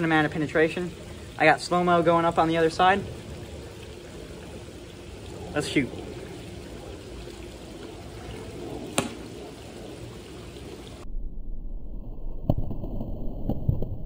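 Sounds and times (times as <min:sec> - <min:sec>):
water trickling into pool: 0:00.0 - 0:11.0
low hum: 0:00.0 - 0:14.0
blowgun pop: 0:08.9 - 0:09.3.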